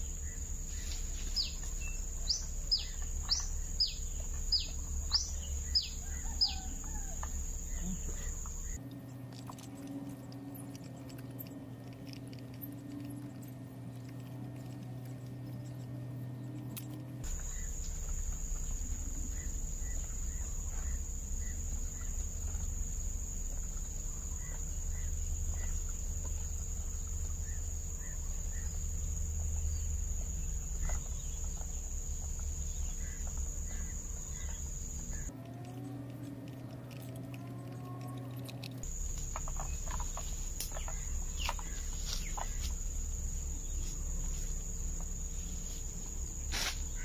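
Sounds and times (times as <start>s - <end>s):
short insect chirps: 0.0s - 8.8s, 37.3s - 47.0s.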